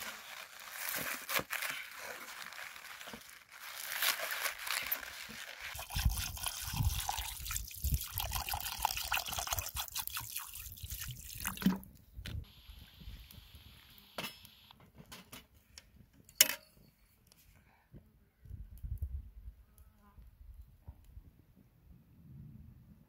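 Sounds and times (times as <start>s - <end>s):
water pouring into a pot: 5.7s - 11.8s.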